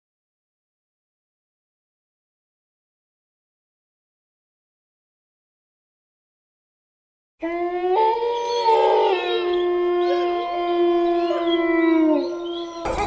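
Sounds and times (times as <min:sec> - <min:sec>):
dogs howling: 0:07.4 - 0:13.0.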